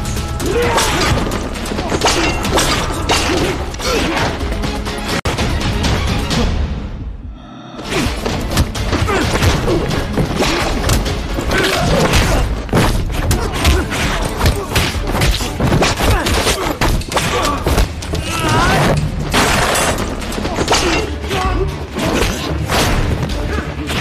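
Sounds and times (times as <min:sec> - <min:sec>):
loud action film music: 0:00.0 - 0:24.0
people shouting: 0:00.3 - 0:04.5, 0:08.9 - 0:19.0, 0:20.3 - 0:22.6.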